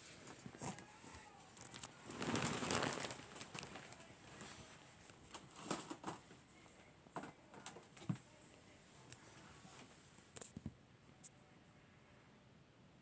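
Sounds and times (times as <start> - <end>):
fabric rustling: 0.0 - 4.8.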